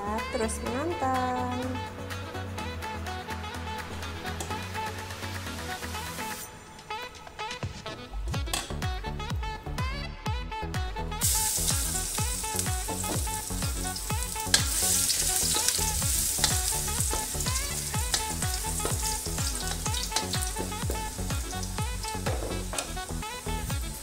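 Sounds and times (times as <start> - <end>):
background music with steady beat: 0.0 - 24.0
garlic sizzling in hot oil: 11.2 - 24.0.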